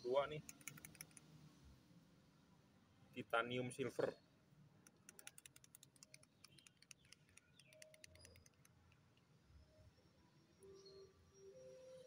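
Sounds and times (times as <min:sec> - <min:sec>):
paint bottle ball rattling: 0:04.9 - 0:09.1.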